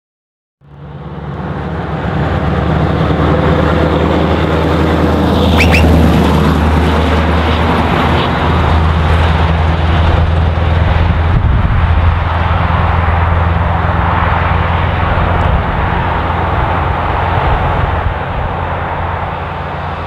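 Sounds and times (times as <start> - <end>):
truck driving past: 0.6 - 20.0
high whistle: 5.5 - 6.0.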